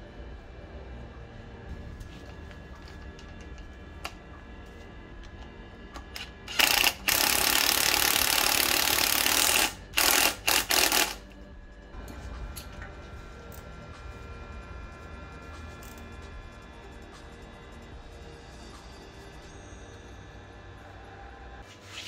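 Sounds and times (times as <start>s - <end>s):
cordless driver whirring: 6.0s - 11.4s.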